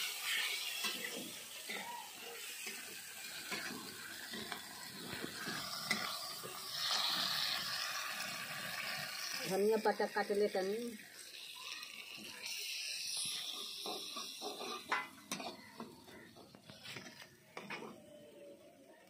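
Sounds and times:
metal spatula scraping a pan: 0.0 - 7.6, 13.1 - 16.2
food sizzling in hot oil: 0.0 - 17.2.

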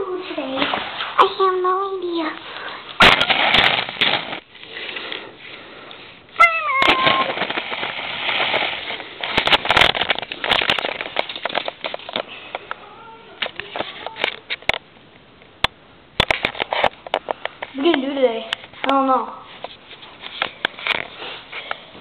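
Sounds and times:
camera handling rustling: 6.8 - 12.3.

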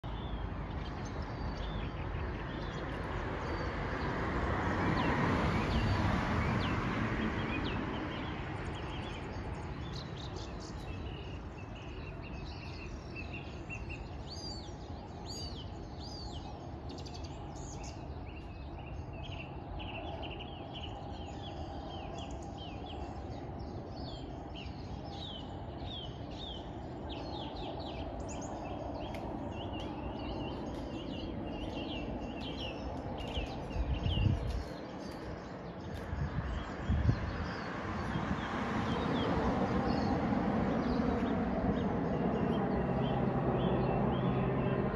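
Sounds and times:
small birds chirping: 0.0 - 4.1, 4.8 - 44.9
passing car: 3.1 - 8.8, 36.1 - 44.9.

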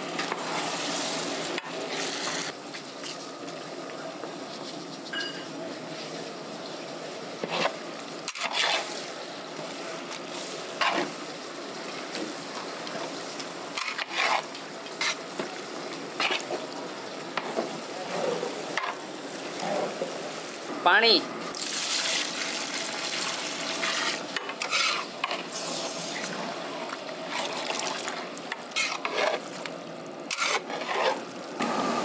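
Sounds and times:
vegetables sizzling in a pot: 0.0 - 32.0
ladle scraping a pot: 7.4 - 9.0, 13.8 - 15.2, 23.8 - 25.6, 27.2 - 29.6, 30.3 - 31.3.

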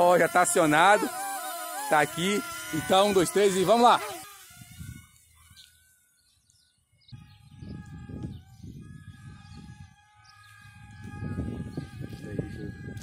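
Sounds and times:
faint propeller motor whine: 0.0 - 13.0
wind gusting on microphone: 4.2 - 5.2, 7.1 - 13.0
bird chirps: 5.4 - 8.7.

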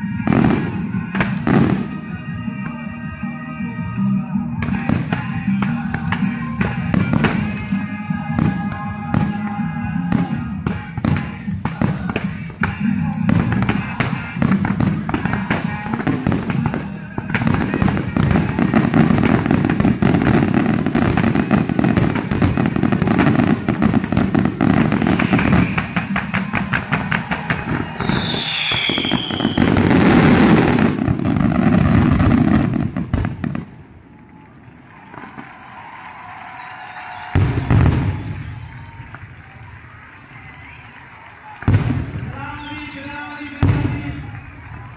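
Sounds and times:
fireworks bangs and crackling: 0.0 - 44.9
falling fireworks whistles: 11.9 - 33.6, 34.9 - 44.9.

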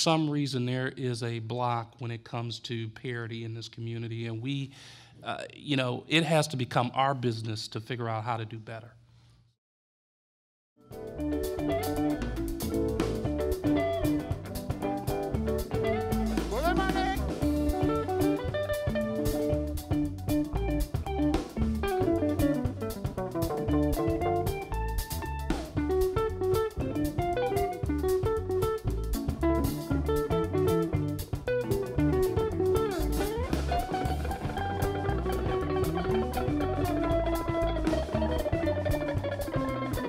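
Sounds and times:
drum kit with cymbals: 10.9 - 40.0
electric guitars picking melodies: 10.9 - 40.0.

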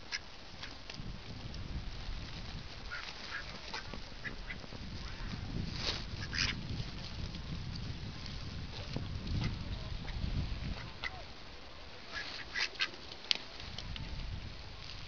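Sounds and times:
ducks quacking: 2.9 - 5.4, 6.2 - 6.6, 9.3 - 11.3, 12.1 - 13.0.

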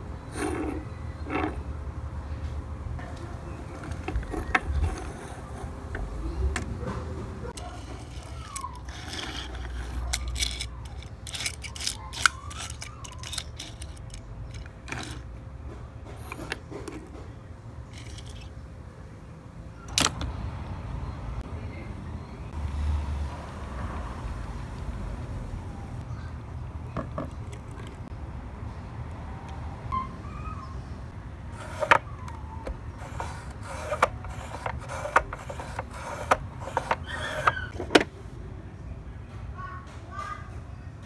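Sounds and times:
toy cars clicking on tabletop: 7.6 - 15.3, 18.0 - 18.5, 31.6 - 37.7.

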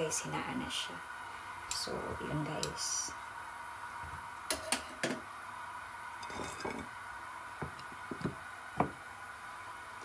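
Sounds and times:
dishes and utensils clinking: 6.2 - 6.9.

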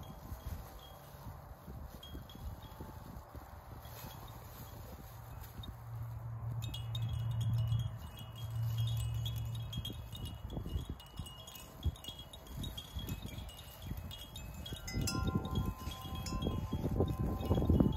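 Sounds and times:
link chains clinking: 6.6 - 17.9
plastic toy rattles jingling: 6.7 - 17.9.

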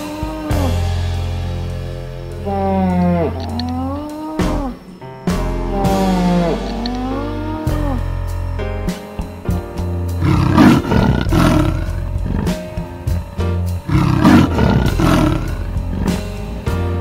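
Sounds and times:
background music: 0.0 - 17.0
big cat roaring: 2.4 - 4.9, 5.7 - 8.4, 10.1 - 16.6.

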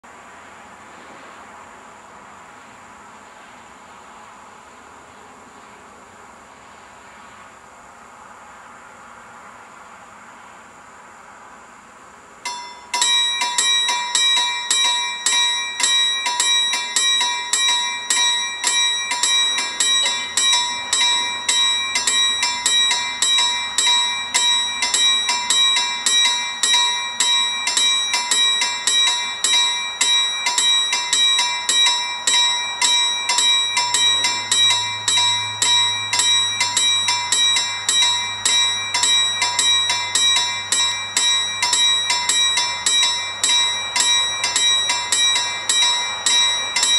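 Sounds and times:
level crossing warning bell ringing: 12.4 - 46.9.

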